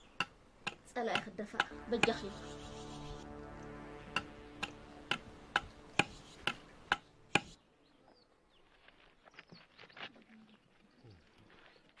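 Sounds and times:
sharp ticks: 0.2s - 2.9s, 3.6s - 7.6s.

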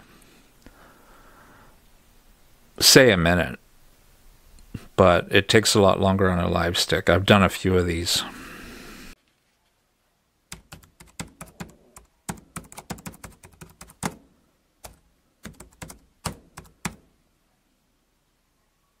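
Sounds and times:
typing on computer keyboard: 10.5s - 14.2s, 14.8s - 17.0s.

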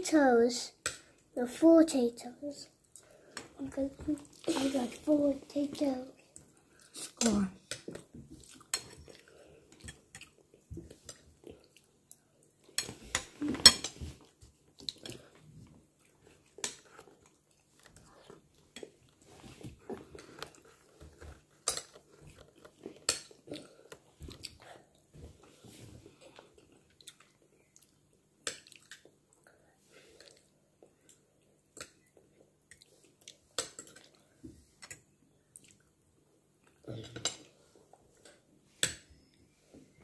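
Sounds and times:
chewing: 7.7s - 12.4s, 14.2s - 25.0s, 26.1s - 29.5s, 34.8s - 36.0s.

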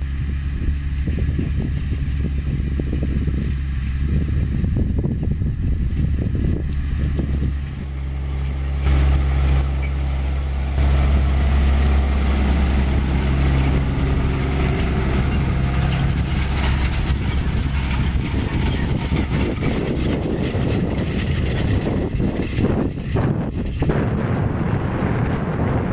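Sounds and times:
tractor diesel engine droning: 0.0s - 25.9s
cultivator tines clattering: 6.7s - 24.4s.

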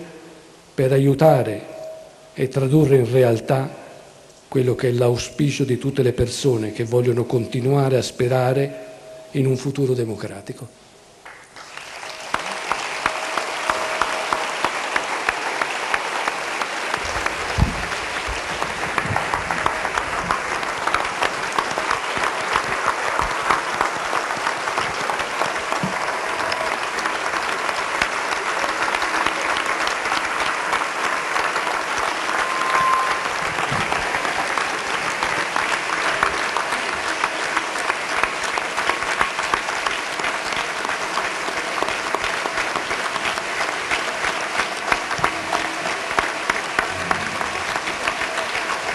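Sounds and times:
audience applause: 11.2s - 48.9s.

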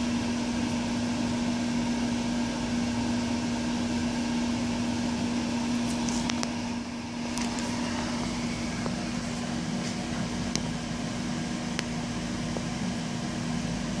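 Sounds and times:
machine hum and fan noise: 0.0s - 14.0s.

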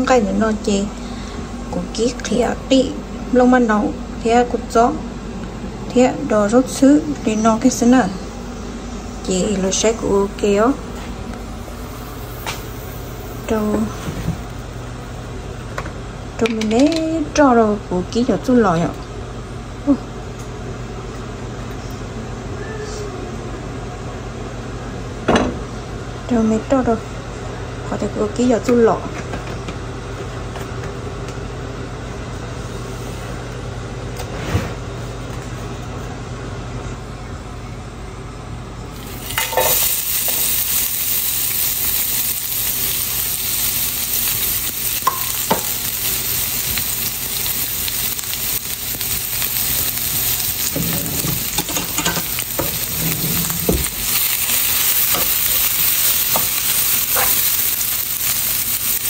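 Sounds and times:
low steady hum: 0.0s - 34.3s
food sizzling in hot oil: 7.6s - 14.5s, 38.9s - 59.0s.

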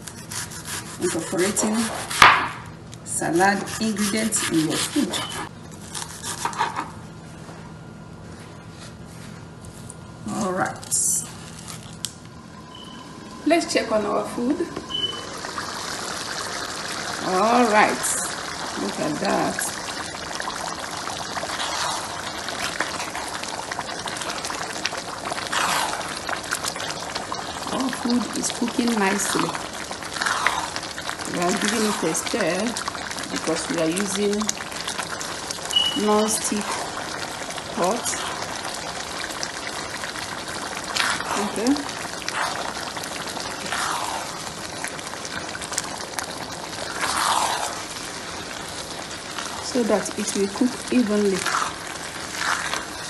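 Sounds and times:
stew boiling and bubbling: 0.0s - 53.0s
spatula stirring stew: 3.1s - 5.5s, 21.3s - 27.0s, 36.5s - 44.4s, 45.4s - 47.9s, 51.4s - 53.0s.

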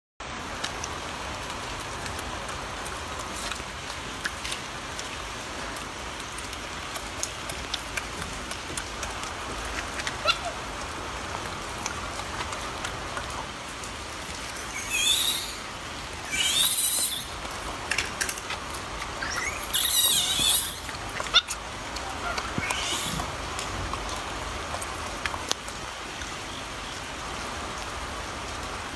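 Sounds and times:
monkey chewing clicks: 6.4s - 10.5s
background hiss: 9.0s - 28.9s
monkey high-pitched chirping: 10.2s - 10.6s, 14.5s - 17.4s, 19.2s - 23.3s.

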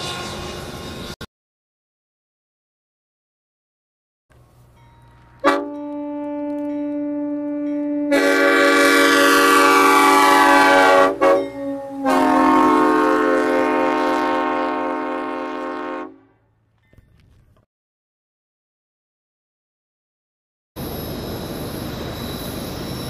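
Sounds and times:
air train horn chord: 0.0s - 0.7s, 4.4s - 16.5s.

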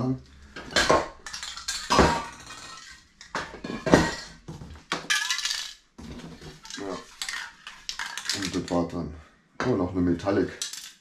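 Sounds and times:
spray cans clinking: 0.6s - 8.8s.

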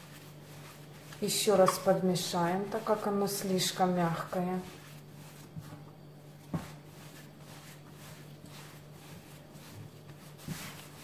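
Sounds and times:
dough thumps: 0.0s - 3.3s, 4.0s - 11.0s
hands rubbing dough: 0.0s - 11.0s
low steady hum: 0.0s - 11.0s.

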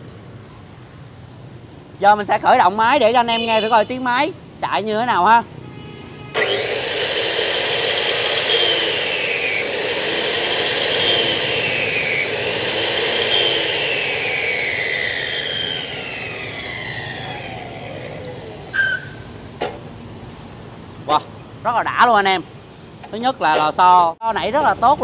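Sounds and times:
cut-off saw motor whining: 6.3s - 19.2s.

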